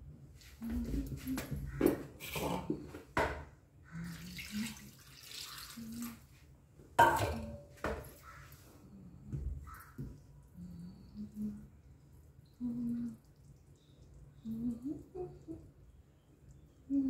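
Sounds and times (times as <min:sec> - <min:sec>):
water pouring and splashing: 0:04.0 - 0:06.4.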